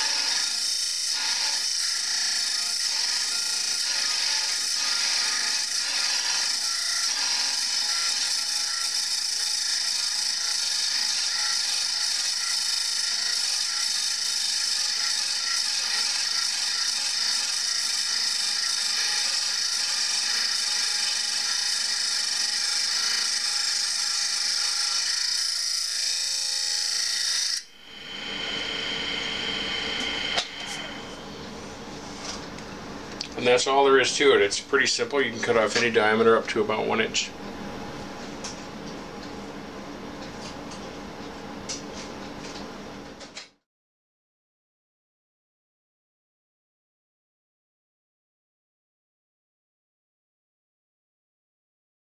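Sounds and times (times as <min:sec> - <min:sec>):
high-pitched grinding hiss: 0:27.6 - 0:31.3
machine running: 0:27.6 - 0:31.8.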